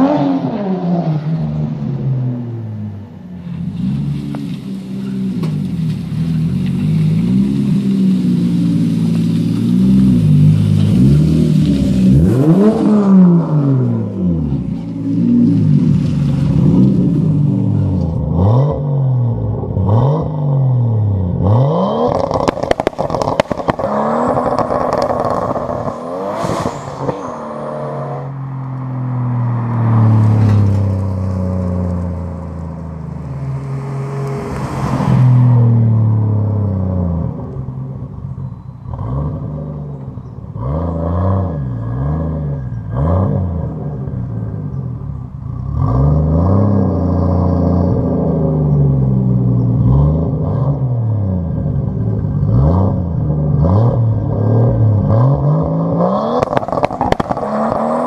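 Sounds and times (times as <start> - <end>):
car engine pulling away: 0.0 - 58.0
car engine revving: 0.0 - 58.0
antilag crackles and pops: 22.2 - 25.9, 56.4 - 58.0.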